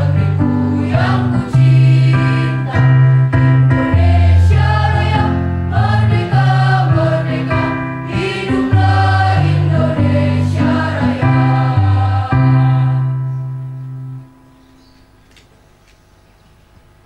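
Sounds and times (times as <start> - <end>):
girls' choir singing: 0.0 - 3.0, 3.8 - 13.4.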